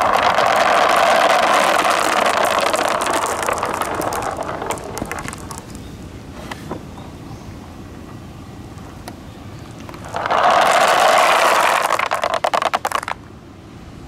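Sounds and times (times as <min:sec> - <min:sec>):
marbles clattering down a slope: 0:00.0 - 0:05.8, 0:09.9 - 0:13.3.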